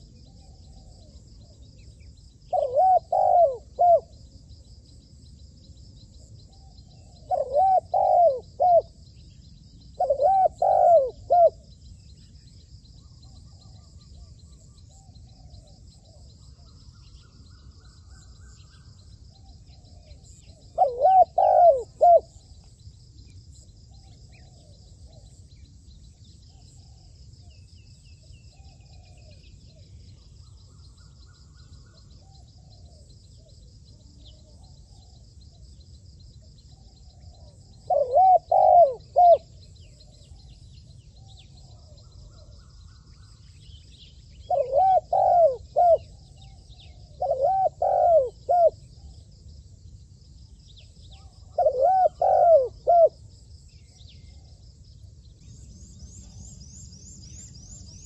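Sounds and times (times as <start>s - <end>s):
dove cooing: 2.5s - 4.2s, 6.6s - 9.0s, 10.0s - 11.6s, 19.7s - 22.4s, 37.2s - 39.6s, 44.5s - 49.2s, 51.2s - 53.2s.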